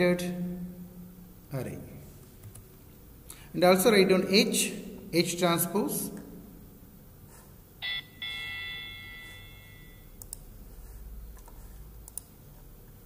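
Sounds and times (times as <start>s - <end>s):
electronic notification chime: 7.8s - 10.2s
faint mouse clicks: 11.3s - 12.3s.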